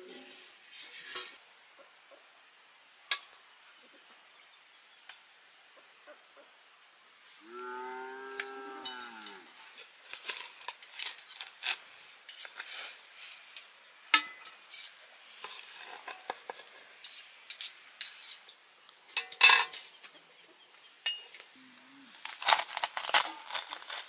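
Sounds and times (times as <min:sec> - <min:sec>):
plate scraping a cooking pot: 0:08.8 - 0:20.0.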